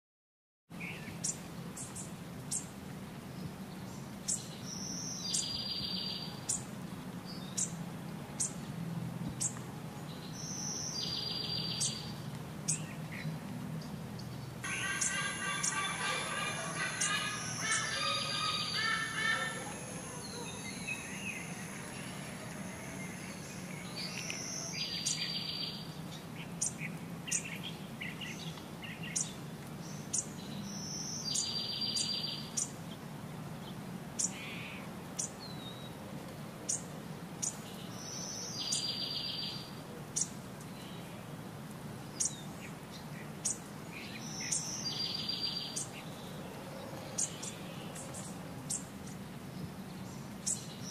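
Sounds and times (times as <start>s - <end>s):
low background hum: 1.0s - 28.5s
birds chirping: 3.3s - 7.8s, 8.4s - 33.0s, 36.7s - 50.9s
repeated bird call: 14.6s - 25.8s.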